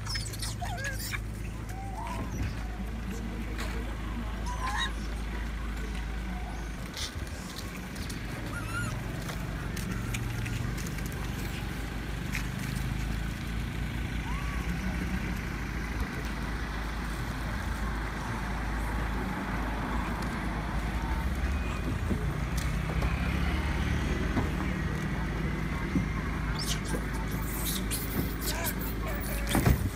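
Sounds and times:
low vehicle rumble: 0.0 - 29.9.

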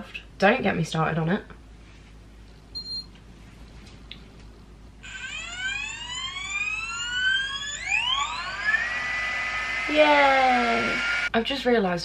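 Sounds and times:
fan motor whine: 4.9 - 11.4.

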